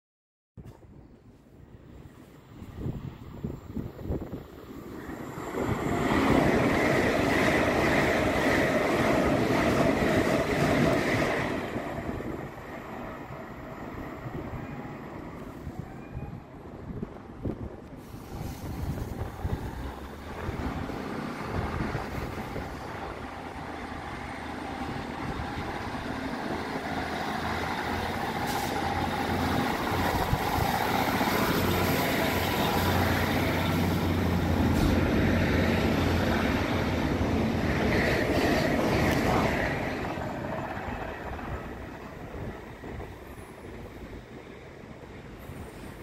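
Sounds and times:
diesel train engine running: 18.0s - 44.4s.

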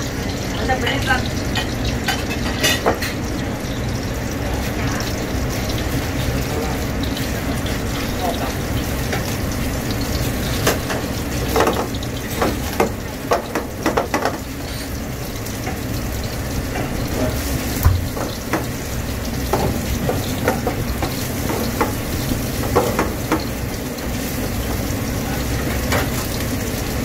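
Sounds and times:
crab meat sizzling in pan: 0.0s - 27.0s
spatula knocking and scraping pan: 10.6s - 14.5s, 19.4s - 23.6s.

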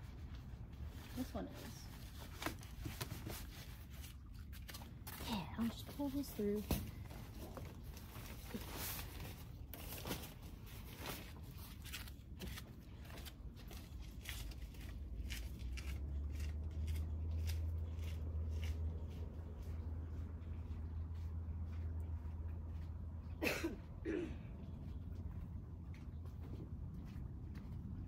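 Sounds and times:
clicks and scrapes of tie: 7.5s - 19.1s
low steady rumble: 13.2s - 28.0s.

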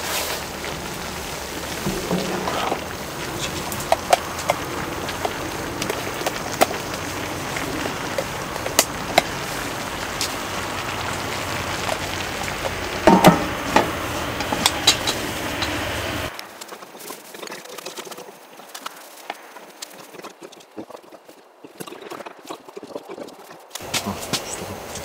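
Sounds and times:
stew sizzling and bubbling: 0.0s - 25.0s
small pops: 1.6s - 16.7s
wooden spatula taps: 12.6s - 15.8s
metal lid clatter: 13.0s - 15.8s.

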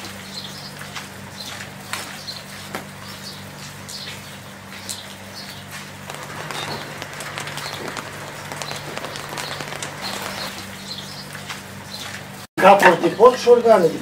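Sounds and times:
small birds chirping: 0.2s - 12.2s
soft steady hiss: 6.1s - 10.7s
low hum: 6.1s - 10.8s.

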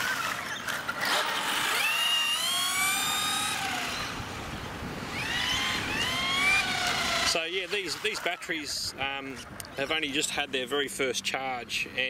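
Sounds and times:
electric motor whining: 0.0s - 8.6s.

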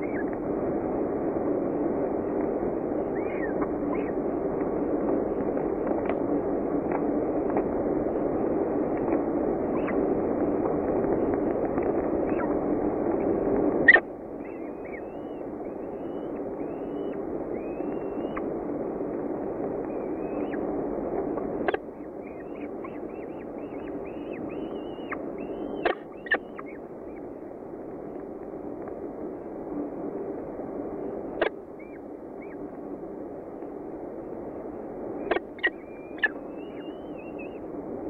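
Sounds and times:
nestlings begging chirps: 3.0s - 4.2s, 9.6s - 10.1s, 13.9s - 18.5s, 19.8s - 20.7s, 21.4s - 27.4s, 31.8s - 32.6s, 35.2s - 37.6s.

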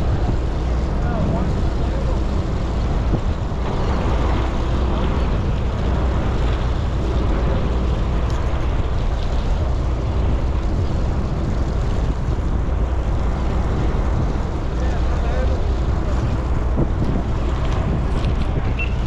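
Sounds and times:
boat engine droning: 0.0s - 19.0s
wind noise: 0.0s - 19.0s.

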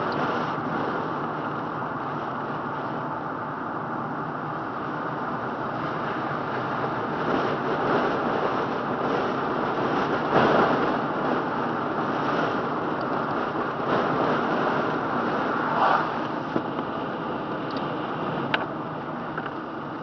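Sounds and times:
car tyre and wind noise: 0.0s - 20.0s.

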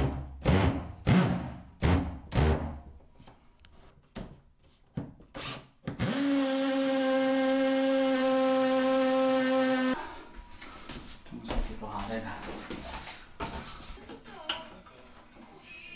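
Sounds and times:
cordless drill cutting wood: 5.4s - 10.0s.

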